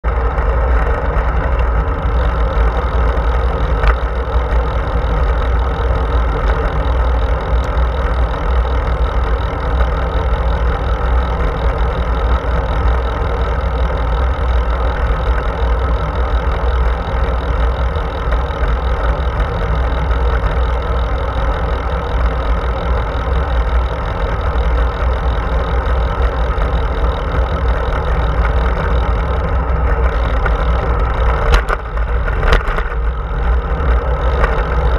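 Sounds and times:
bike tyres rolling on asphalt: 0:00.0 - 0:34.9.

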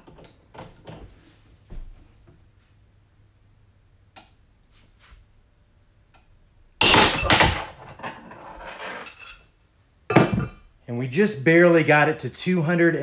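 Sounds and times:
metal clatter: 0:06.8 - 0:09.4.

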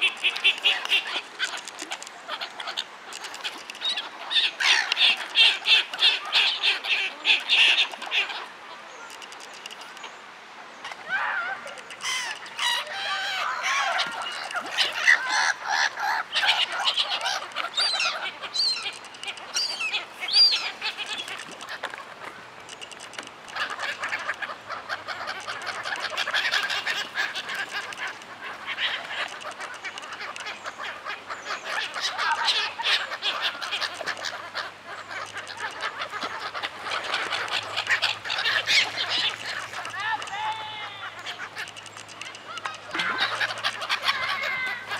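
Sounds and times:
gulls calling harshly: 0:10.8 - 0:22.6, 0:23.4 - 0:44.9.

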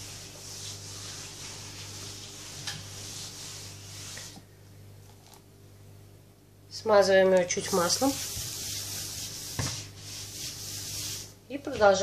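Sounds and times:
cloth wiping plastic tablecloth: 0:00.0 - 0:04.4, 0:07.6 - 0:12.0.

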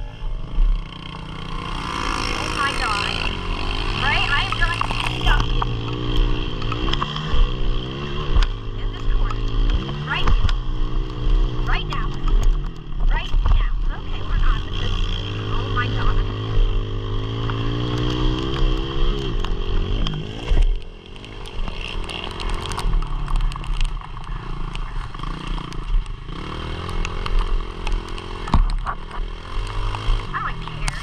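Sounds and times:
small motorbike engine revving: 0:00.0 - 0:31.0.

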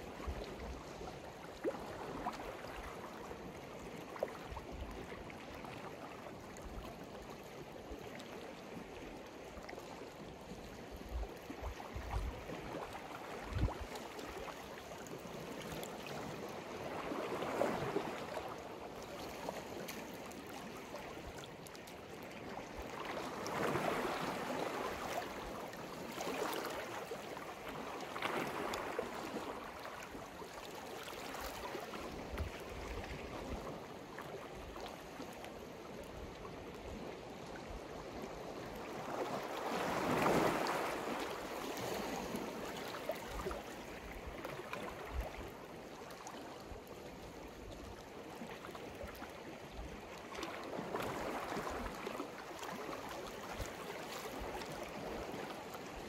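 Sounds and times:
sea waves washing onto shore: 0:38.0 - 0:46.3.

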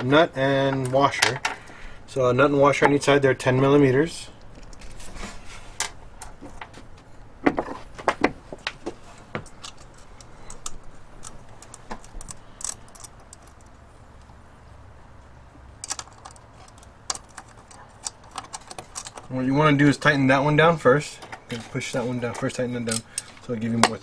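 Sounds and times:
metallic clicks of nuts and washers: 0:09.4 - 0:14.4, 0:15.8 - 0:19.3, 0:22.3 - 0:24.0.

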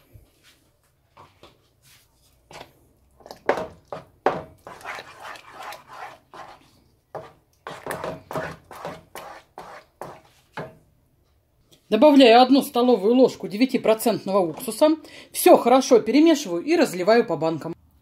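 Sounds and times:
spatula stirring in saucepan: 0:01.2 - 0:10.8.

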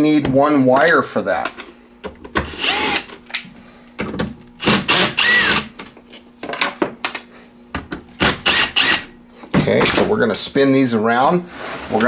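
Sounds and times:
cordless drill running: 0:02.5 - 0:03.1, 0:04.6 - 0:05.7, 0:08.2 - 0:09.1.

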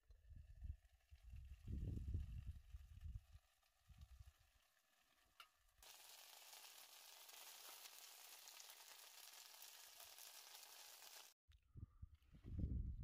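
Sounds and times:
pot sizzling on burner: 0:02.4 - 0:11.4.

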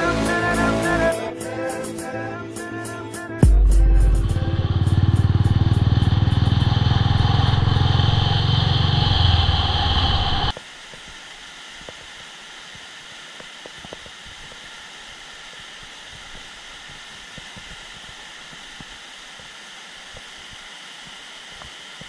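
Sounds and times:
engine running: 0:03.4 - 0:10.5.

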